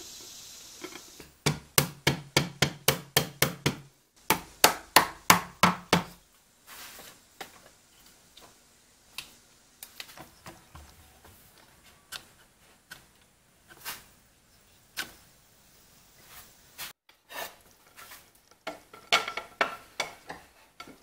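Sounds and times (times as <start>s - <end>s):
hammer tapping wood: 1.4s - 6.2s.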